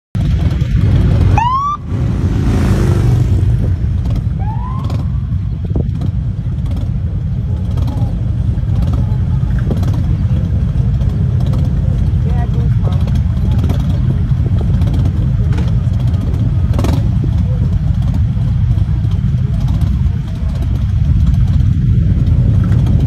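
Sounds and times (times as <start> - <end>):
motorcycle engines rumbling: 0.2 - 23.0
siren whoop: 1.3 - 1.9, 4.4 - 5.2.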